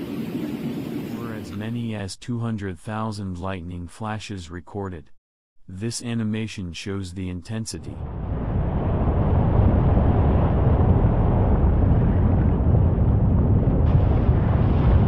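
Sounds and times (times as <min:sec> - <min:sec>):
wind buffeting microphone: 0:00.0 - 0:01.6, 0:08.0 - 0:15.0
low rumble: 0:07.9 - 0:15.0.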